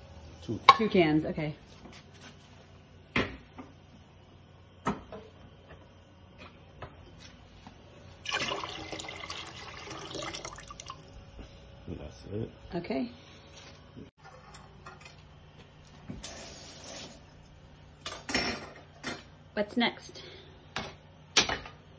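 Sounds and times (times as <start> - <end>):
liquid pouring into pot: 8.2 - 11.1.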